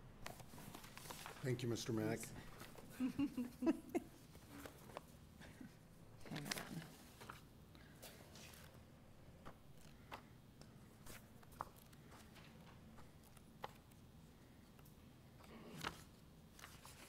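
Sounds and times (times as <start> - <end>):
papers rustling and clicking: 0.2 - 1.6, 4.2 - 5.2, 6.2 - 8.8, 9.4 - 17.0.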